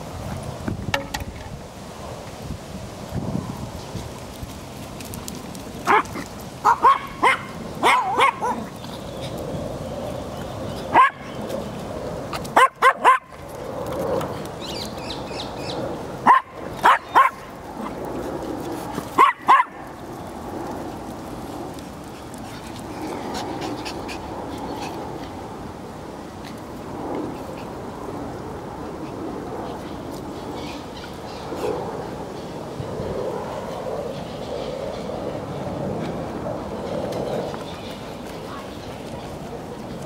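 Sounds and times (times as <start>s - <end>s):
dog barking: 6.6s - 8.6s, 10.9s - 11.3s, 12.6s - 13.3s, 16.2s - 17.4s, 19.2s - 19.8s.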